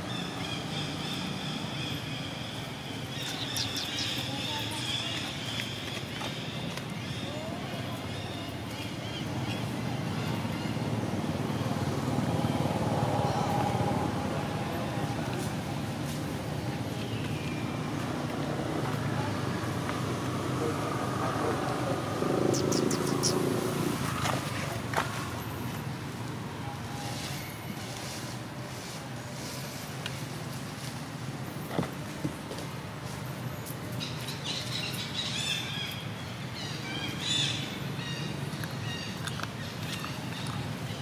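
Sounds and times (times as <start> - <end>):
distant vehicle engine passing: 9.8 - 16.9, 17.6 - 25.6.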